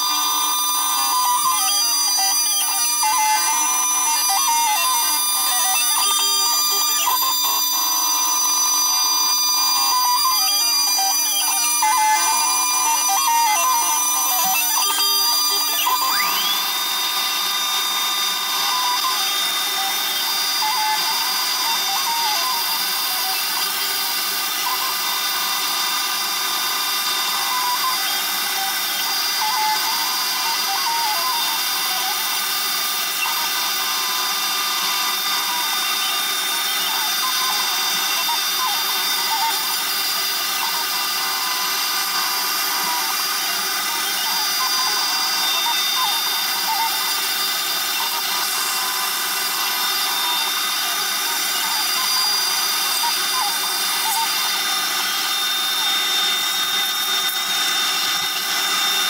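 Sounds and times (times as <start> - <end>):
router spindle whining while cutting: 0.0 - 59.0
vacuum cleaner running: 12.3 - 59.0.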